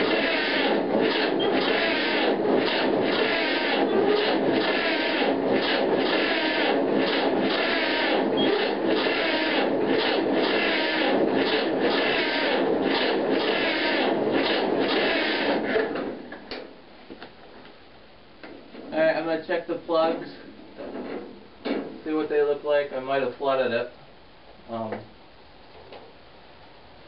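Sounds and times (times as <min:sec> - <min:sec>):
electric starter cranking engine: 0:00.0 - 0:16.2.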